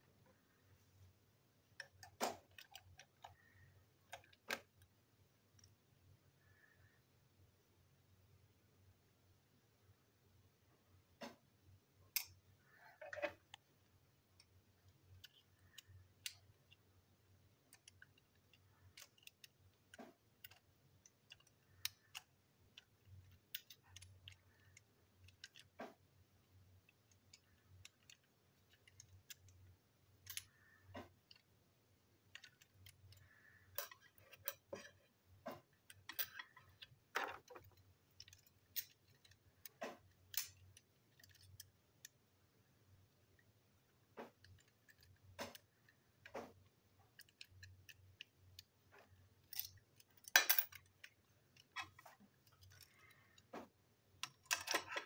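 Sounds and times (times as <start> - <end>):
clicks of small plastic parts: 1.7 - 4.9, 12.1 - 13.7, 14.3 - 31.5, 32.2 - 42.3, 43.0 - 55.0.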